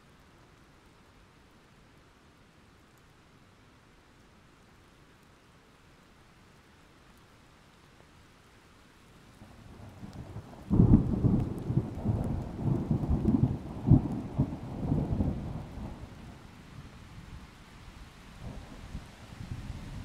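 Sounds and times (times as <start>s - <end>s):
faint rain hiss: 0.0s - 20.0s
thunder rumbling: 9.9s - 16.2s.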